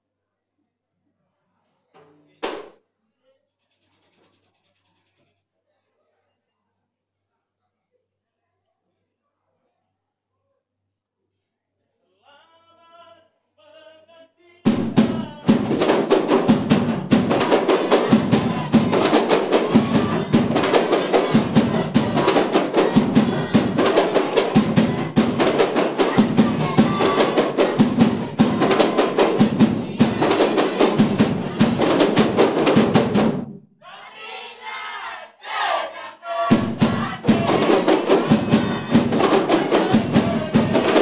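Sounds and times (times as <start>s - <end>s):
frame drums fast hand-beats: 14.7s - 33.6s, 36.4s - 41.0s.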